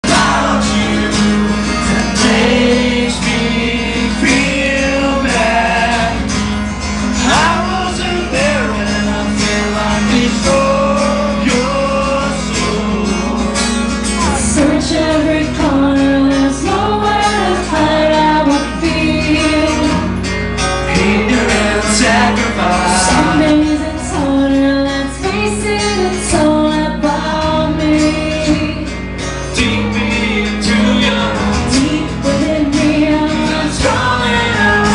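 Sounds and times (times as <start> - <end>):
woman and man singing: 0.0 - 6.4, 7.2 - 20.2, 20.8 - 34.9
acoustic guitars playing: 0.0 - 34.9.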